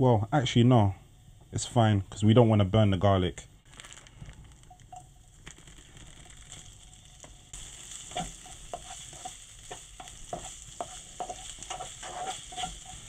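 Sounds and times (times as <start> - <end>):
bacon sizzling in a frying pan: 3.6 - 13.0
spatula scraping and tapping pan: 7.9 - 13.0.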